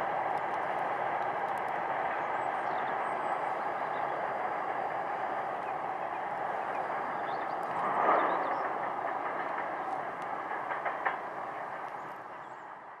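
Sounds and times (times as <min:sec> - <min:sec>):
train wheels rumbling on track: 0:00.0 - 0:13.0
sharp clacks: 0:07.6 - 0:12.3.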